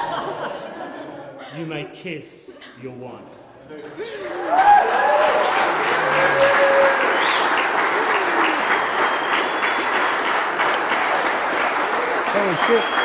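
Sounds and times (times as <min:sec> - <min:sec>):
crowd applause: 0:04.0 - 0:13.0
people cheering: 0:04.0 - 0:13.0.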